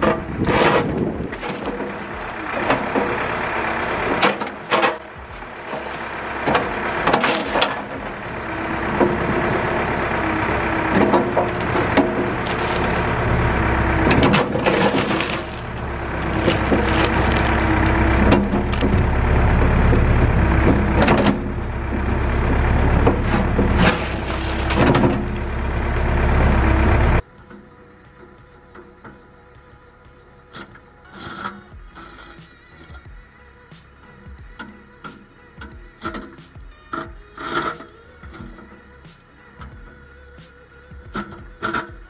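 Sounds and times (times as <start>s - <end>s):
stones shifting: 0.0s - 2.2s, 4.2s - 6.2s, 7.1s - 7.9s, 10.9s - 19.2s, 23.2s - 25.6s
backhoe engine running: 0.0s - 42.0s
laptop cracking and crunching: 12.4s - 13.0s, 14.3s - 19.1s.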